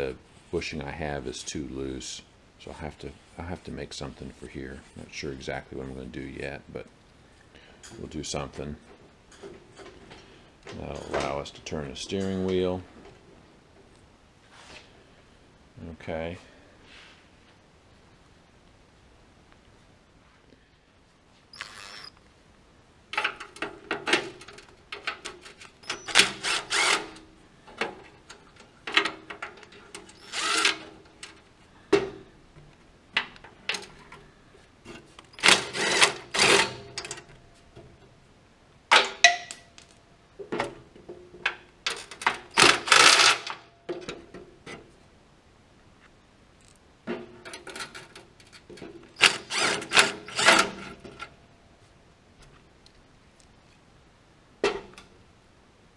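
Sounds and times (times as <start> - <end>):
electric drill driving fasteners: 21.5 - 22.2, 25.3 - 27.2, 29.9 - 31.4, 35.2 - 36.8, 41.9 - 43.6, 49.2 - 51.0.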